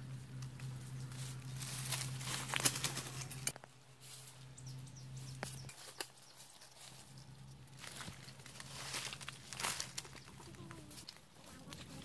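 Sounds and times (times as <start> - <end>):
steady low hum: 0.0 - 12.0
wire-mesh cage trap rattling: 1.7 - 3.6.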